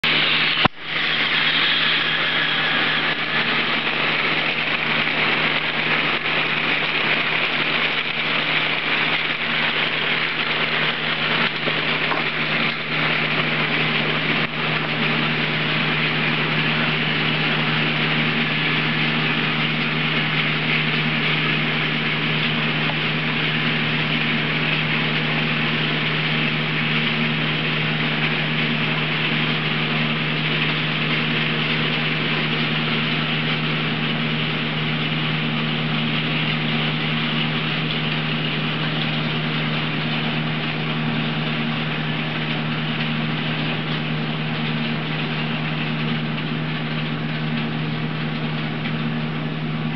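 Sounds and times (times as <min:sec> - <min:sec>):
even hiss: 0:00.1 - 0:06.0.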